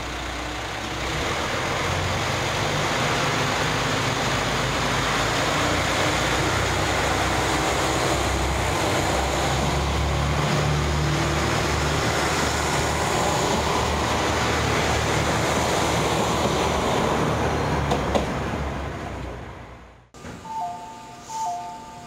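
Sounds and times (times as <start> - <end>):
wheels rumbling on rail: 0.0 - 21.7
diesel engines humming: 0.0 - 22.0.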